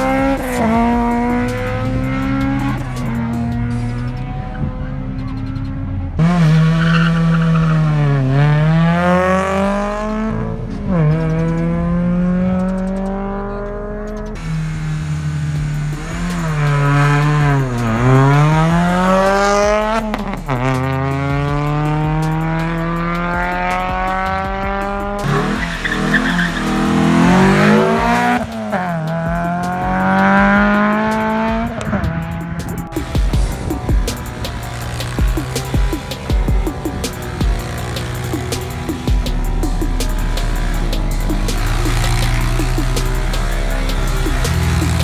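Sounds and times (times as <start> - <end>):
rally car engine revving: 0.0 - 45.0
tyres squealing: 25.2 - 28.5.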